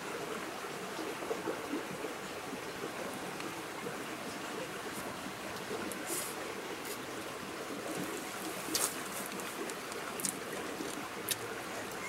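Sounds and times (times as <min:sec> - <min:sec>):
running water: 0:00.0 - 0:12.0
eating noises: 0:07.9 - 0:12.0.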